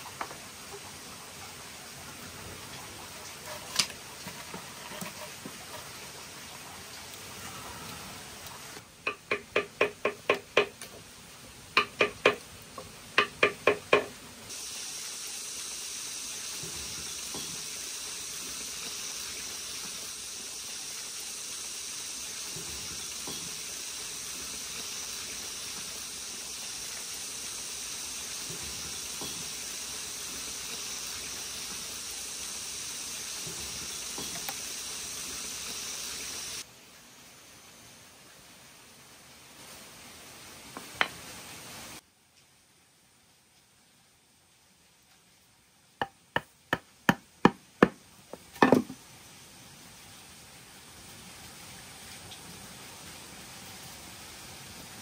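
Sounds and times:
hot iron sizzling into wood: 8.4s - 11.0s, 11.8s - 36.7s.

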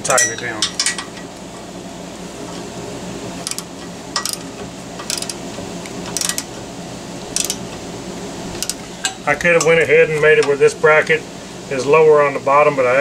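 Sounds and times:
wrench metal clicks: 3.4s - 5.4s, 6.0s - 6.5s, 7.3s - 7.7s, 8.6s - 8.8s.

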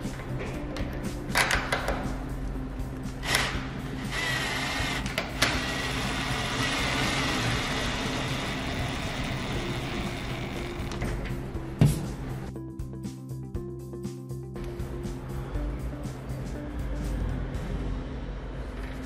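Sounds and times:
background music: 0.0s - 19.0s.

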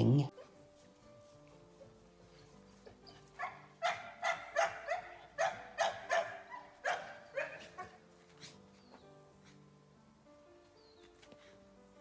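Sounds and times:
puppy yapping: 3.0s - 8.6s.

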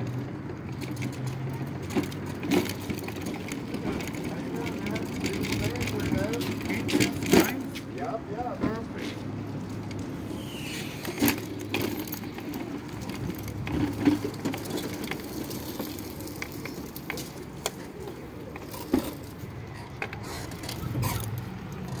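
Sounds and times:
mobility scooter humming: 0.0s - 22.0s
clinks and rattles: 11.1s - 22.0s.

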